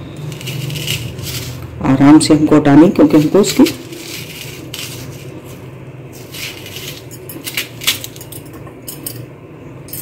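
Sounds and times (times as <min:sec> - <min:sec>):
spoon scraping onion: 0:00.2 - 0:01.8, 0:03.0 - 0:07.4.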